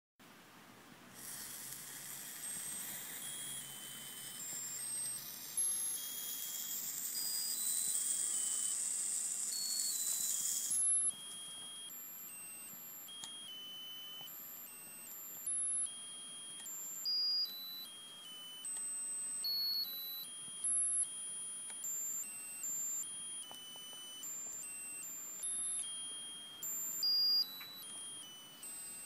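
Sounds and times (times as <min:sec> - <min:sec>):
sparkler hissing: 0:01.2 - 0:11.1
tinny beeping tune: 0:02.3 - 0:29.0.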